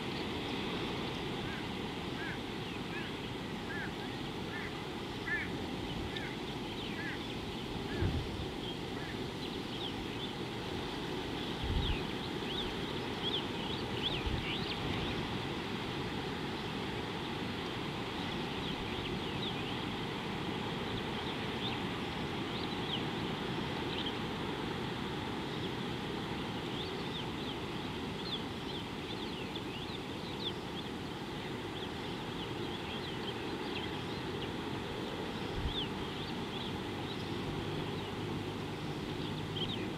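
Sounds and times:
small birds chirping: 0.0s - 15.4s, 26.4s - 39.9s.

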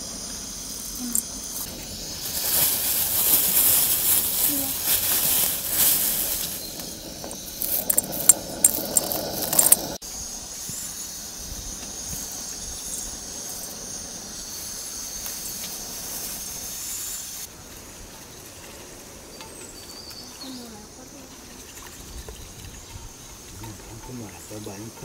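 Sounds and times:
gas burner hissing: 0.0s - 18.0s
lentils clinking against steel bowl: 5.1s - 10.0s.

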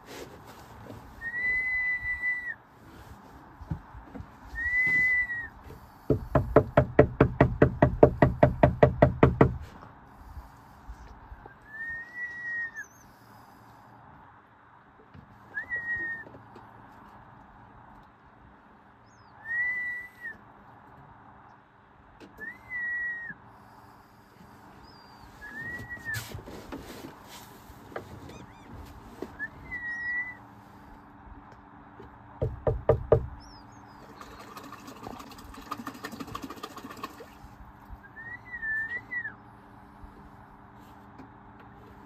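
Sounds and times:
bird whistling a clear note: 22.4s - 23.4s, 24.8s - 26.2s, 29.4s - 30.4s, 38.1s - 39.4s.

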